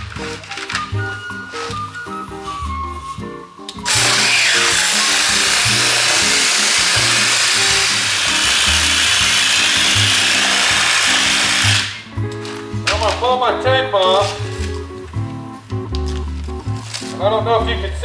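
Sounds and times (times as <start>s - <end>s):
background music: 0.0s - 18.0s
pneumatic air file sanding: 3.9s - 12.0s.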